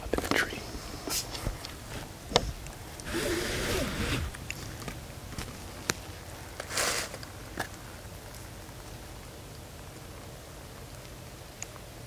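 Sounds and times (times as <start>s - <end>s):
man whispering: 0.0s - 1.3s.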